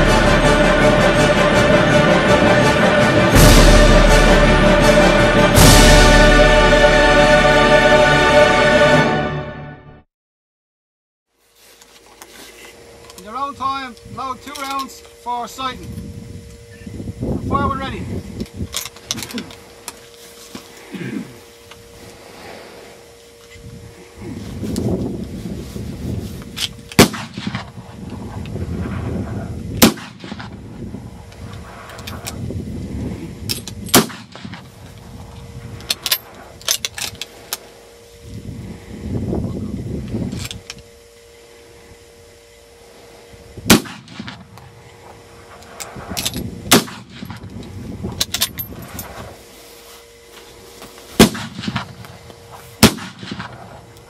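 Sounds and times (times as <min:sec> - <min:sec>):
rifle shots echoing: 0:27.0 - 0:27.8, 0:29.8 - 0:30.6, 0:33.9 - 0:34.7, 0:43.7 - 0:44.5, 0:46.7 - 0:47.4, 0:51.2 - 0:52.0, 0:52.8 - 0:53.8.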